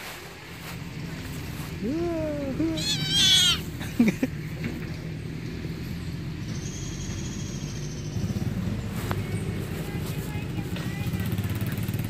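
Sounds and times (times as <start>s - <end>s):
kitten squealing: 2.5s - 3.7s
kitten yelp: 2.8s - 3.6s.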